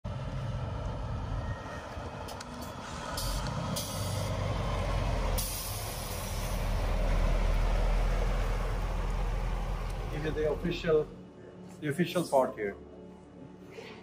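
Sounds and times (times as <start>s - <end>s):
diesel truck passing: 0.0s - 11.6s
air brake hiss: 2.8s - 4.3s, 5.4s - 6.6s.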